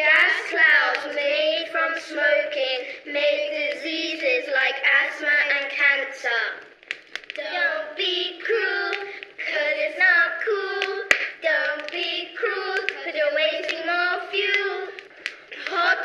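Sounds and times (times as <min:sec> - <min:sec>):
children singing together: 0:00.0 - 0:06.7, 0:07.4 - 0:16.0
sharp hand claps: 0:06.8 - 0:07.4, 0:08.9 - 0:09.4, 0:10.8 - 0:12.0.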